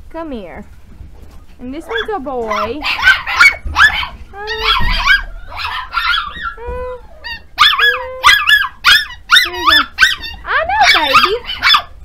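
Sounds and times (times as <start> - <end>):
puppies yipping and whining: 1.4 - 12.0
sharp puppy yaps: 1.9 - 6.6, 7.2 - 11.9.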